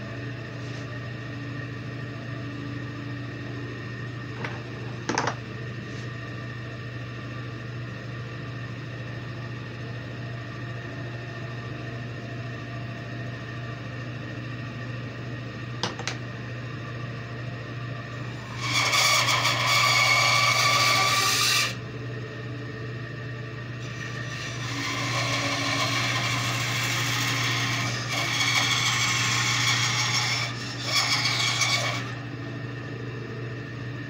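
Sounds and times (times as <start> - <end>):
bandsaw humming: 18.2 - 21.8, 23.8 - 32.3
bandsaw blade cutting wood: 18.4 - 21.8, 23.9 - 32.2.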